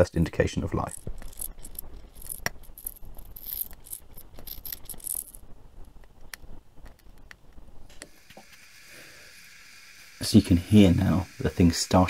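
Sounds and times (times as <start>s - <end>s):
boiler clicks and crackles: 0.0s - 12.0s
steam hissing spurts: 7.9s - 12.0s.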